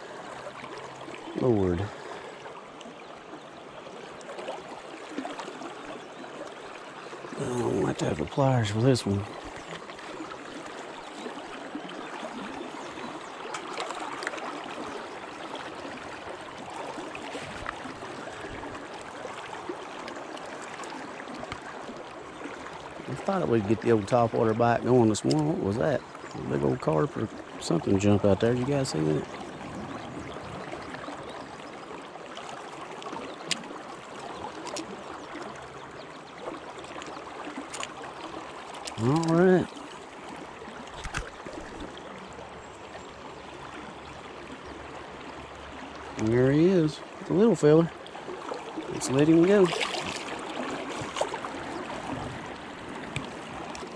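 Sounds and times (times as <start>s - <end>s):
river water rushing and gurgling: 0.0s - 53.9s
faint clicks: 53.1s - 53.9s.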